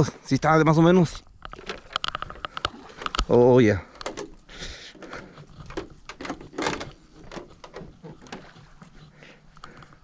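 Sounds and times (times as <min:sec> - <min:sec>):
camera handling rattles: 0:01.4 - 0:03.3, 0:03.9 - 0:08.5
footsteps on wooden boards: 0:04.9 - 0:09.7.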